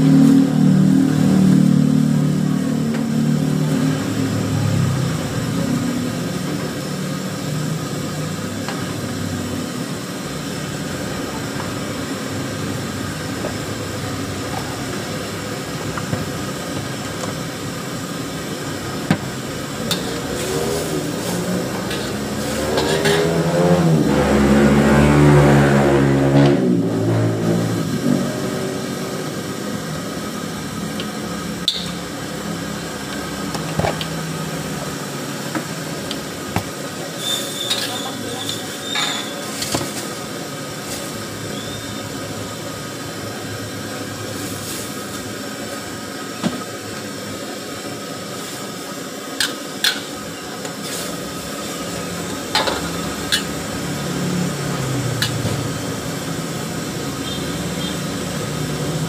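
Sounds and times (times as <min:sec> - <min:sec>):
food sizzling in a wok: 0:00.0 - 0:59.0
gas burner roar: 0:00.0 - 0:59.0
metal ladle scraping a wok: 0:19.8 - 0:23.8, 0:37.2 - 0:40.2, 0:49.4 - 0:53.8
vehicle passing: 0:20.4 - 0:28.0.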